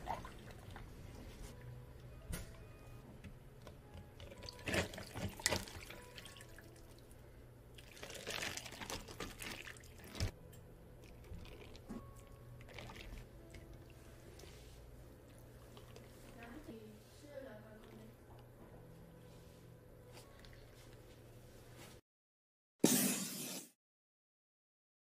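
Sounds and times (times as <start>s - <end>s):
liquid pouring over ice: 7.8s - 10.3s, 12.6s - 13.3s.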